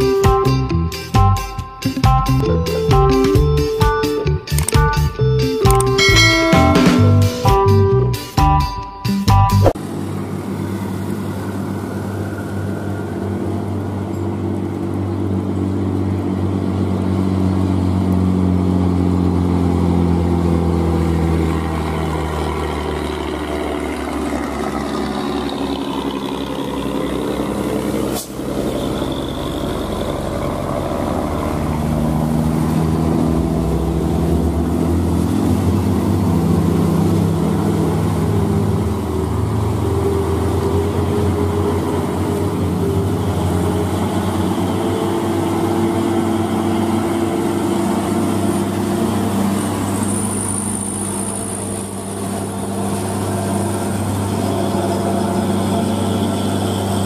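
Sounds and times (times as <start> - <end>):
passing traffic: 0.0 - 57.0
truck diesel engine droning: 0.0 - 57.0
short click: 4.5 - 4.8, 5.6 - 6.0.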